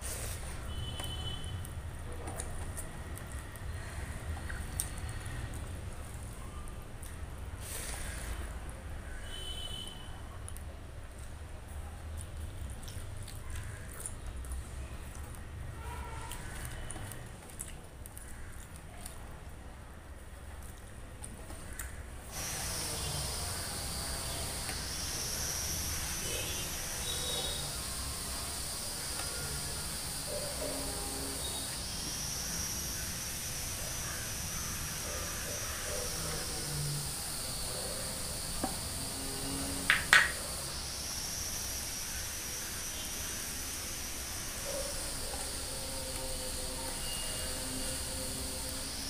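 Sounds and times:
hand mixing food squelches: 0.0 - 9.0, 10.4 - 42.1
insect chorus buzzing: 22.3 - 49.0.

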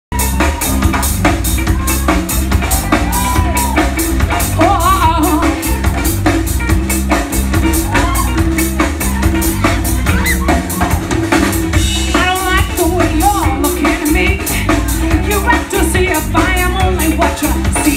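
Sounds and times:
drum kit beat: 0.1 - 17.9
live band playing: 0.1 - 17.9
woman singing: 4.5 - 6.2, 12.0 - 17.9.

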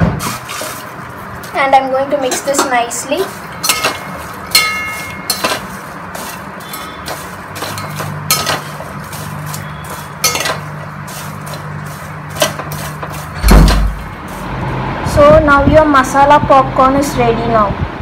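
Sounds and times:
popcorn rustling: 0.0 - 14.6
spoon clinking against metal bowl: 3.5 - 5.8, 6.6 - 10.9.

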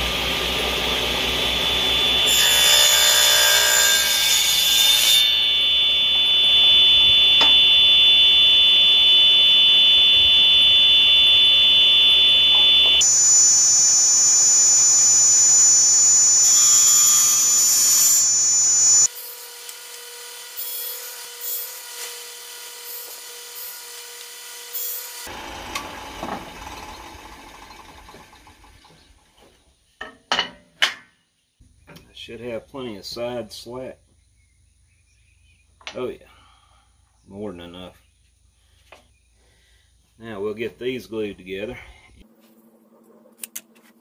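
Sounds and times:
table saw cutting wood: 0.0 - 28.1
saw whining at free speed: 0.0 - 28.8.

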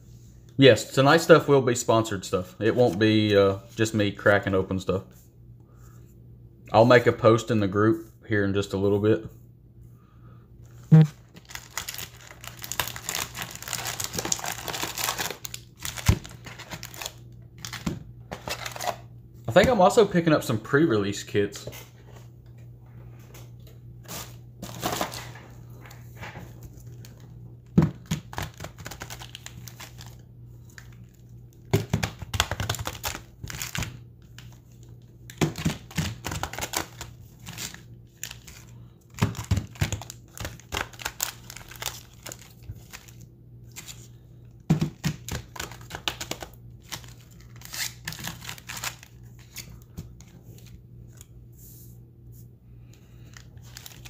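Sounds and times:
foil packs crinkling: 11.2 - 19.0, 24.1 - 25.4, 28.0 - 44.2, 45.0 - 50.8, 53.2 - 54.0.

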